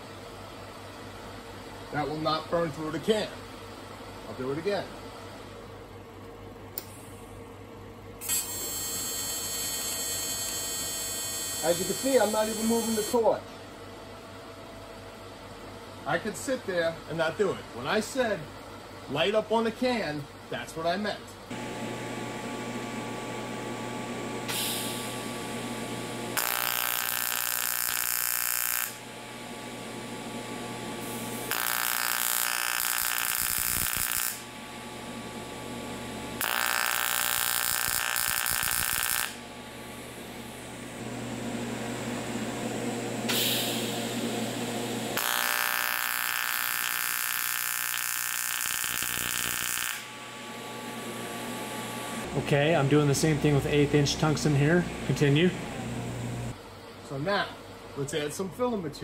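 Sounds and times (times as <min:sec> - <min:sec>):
welding arc buzzing: 0:08.2 - 0:13.4, 0:21.5 - 0:56.6
steady hum: 0:10.4 - 0:59.0.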